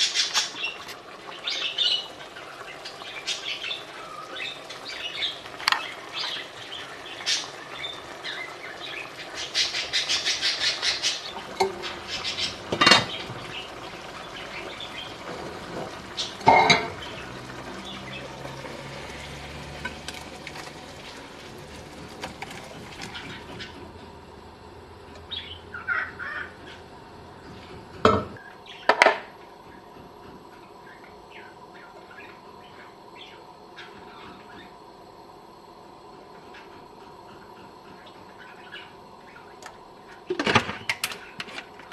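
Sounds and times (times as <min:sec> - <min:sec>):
pot and utensils knocking: 0:11.5 - 0:11.9, 0:15.7 - 0:17.0.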